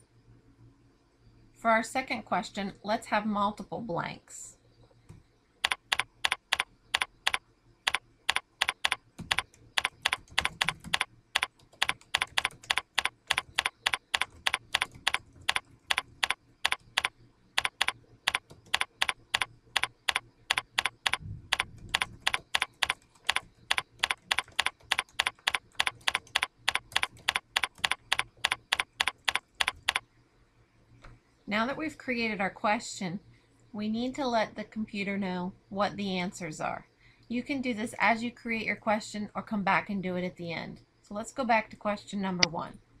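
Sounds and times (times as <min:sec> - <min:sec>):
computer keyboard typing: 0:05.1 - 0:30.0.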